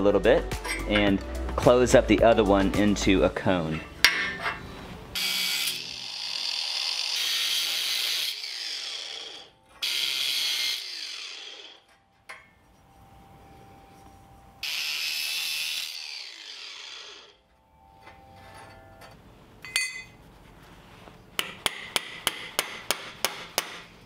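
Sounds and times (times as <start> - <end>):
angle grinder cutting steel pipe: 4.3 - 12.0, 14.6 - 17.4
motor winding down whine: 14.6 - 17.4.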